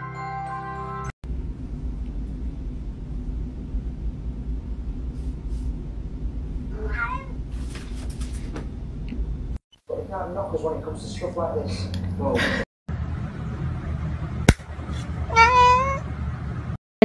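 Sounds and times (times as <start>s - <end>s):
steady low hum: 1.2s - 15.4s
cat meowing: 6.7s - 7.4s, 15.3s - 16.0s.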